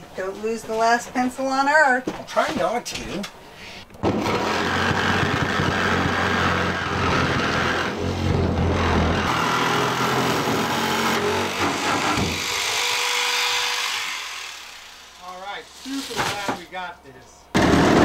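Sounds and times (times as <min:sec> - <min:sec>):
jigsaw cutting metal: 0:04.0 - 0:16.0.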